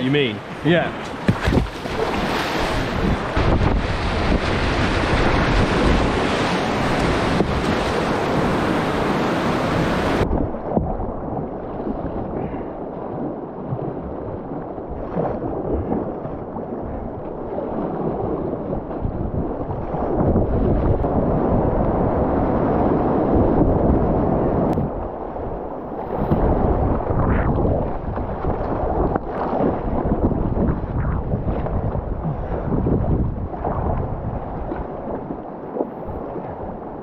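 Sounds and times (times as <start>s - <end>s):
white water rushing and splashing: 0.0s - 12.3s.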